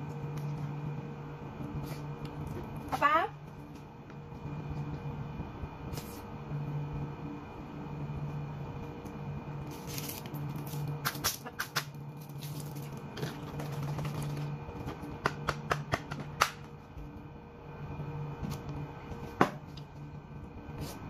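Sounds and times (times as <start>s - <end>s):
low hum: 0.0s - 15.3s, 16.2s - 21.0s.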